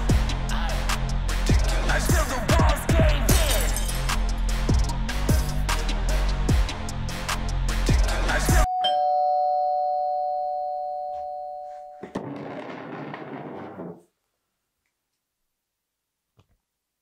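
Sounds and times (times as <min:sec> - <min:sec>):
background music: 0:00.0 - 0:09.0
two-tone doorbell chime: 0:08.7 - 0:12.0
chair scraping back: 0:12.0 - 0:14.1.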